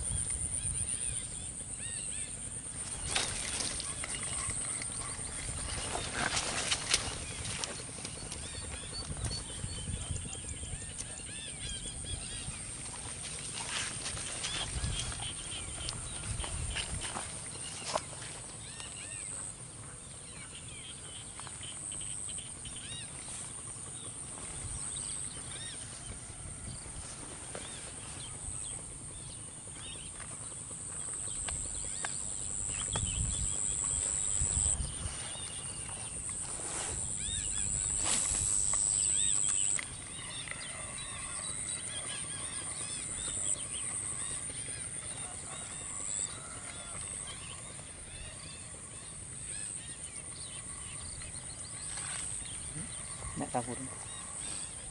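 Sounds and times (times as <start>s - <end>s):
wind rumble on microphone: 0.0s - 1.7s, 2.8s - 18.0s, 31.0s - 40.1s
insects droning: 0.0s - 54.9s
insect chirps: 27.0s - 40.1s.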